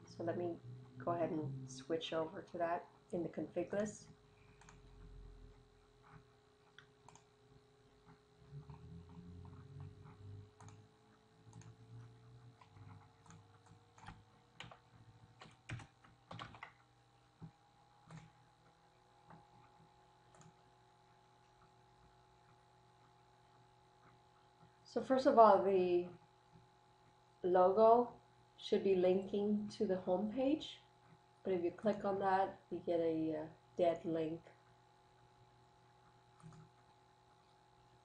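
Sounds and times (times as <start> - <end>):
faint steady hum: 0.0 - 38.0
keyboard typing: 4.5 - 5.0, 6.0 - 7.3, 8.0 - 18.5, 19.2 - 20.7, 36.3 - 36.8.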